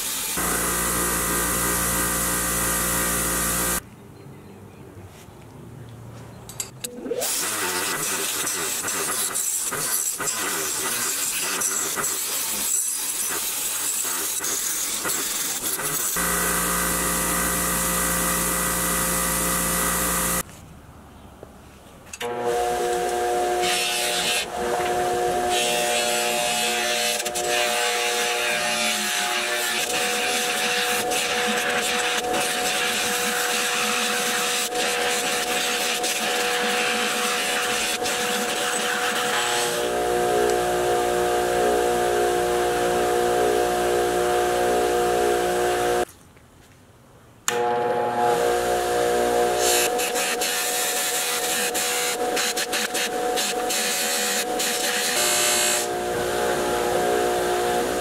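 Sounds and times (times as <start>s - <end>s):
buffing wheel humming: 0.0s - 3.8s, 15.3s - 20.4s, 22.2s - 28.5s, 29.3s - 46.1s, 47.5s - 58.0s
wire wheel grinding metal: 6.8s - 20.4s.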